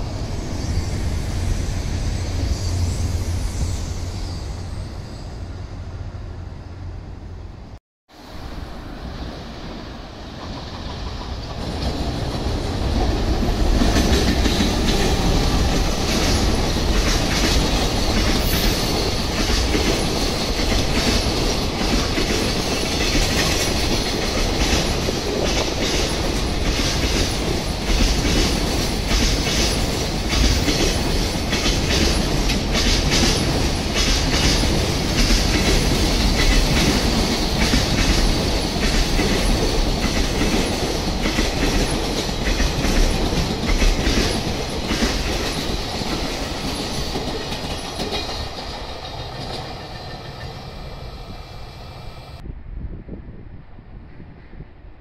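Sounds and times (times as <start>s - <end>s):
electric locomotive passing: 0.0s - 55.0s
train wheels clicking over rail joints: 10.3s - 51.2s.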